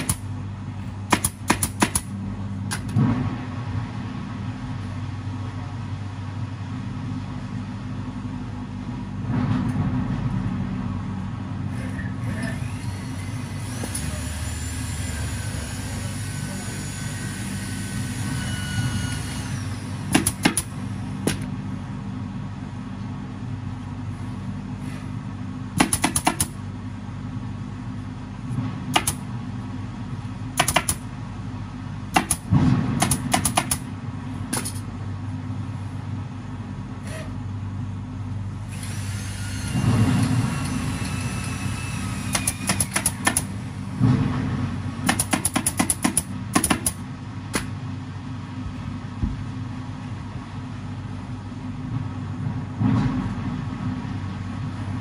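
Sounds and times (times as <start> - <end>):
pneumatic staple gun firing: 0.0 - 0.2, 1.1 - 2.1, 12.4 - 14.3, 20.1 - 21.4, 25.8 - 26.6, 28.9 - 29.2, 30.6 - 31.0, 32.2 - 33.8, 38.7 - 43.5, 45.0 - 47.7
low machine hum: 0.0 - 55.0.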